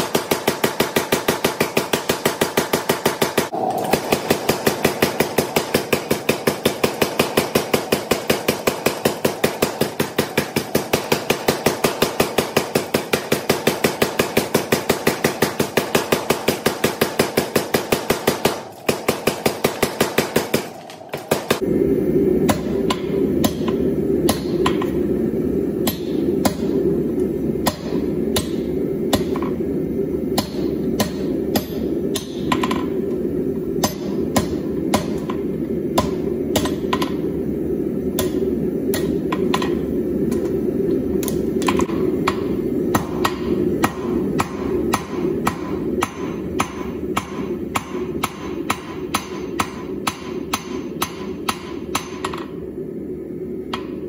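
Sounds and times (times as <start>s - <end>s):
low rushing noise: 21.4s - 47.8s
hammer striking steel on anvil: 22.5s - 25.0s, 25.8s - 26.8s, 27.6s - 29.6s, 30.4s - 33.0s, 33.8s - 35.4s, 36.0s - 37.2s, 38.2s - 40.5s, 41.2s - 52.6s, 53.7s - 54.0s.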